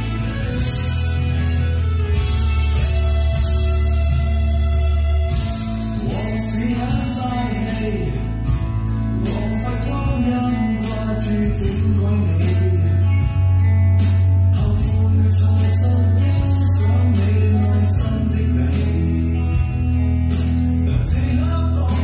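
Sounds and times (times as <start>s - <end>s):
drums with cymbal crashes: 0.0s - 12.6s
guitar: 0.0s - 22.0s
held bass line: 0.0s - 22.0s
man singing: 5.6s - 13.6s, 14.4s - 22.0s.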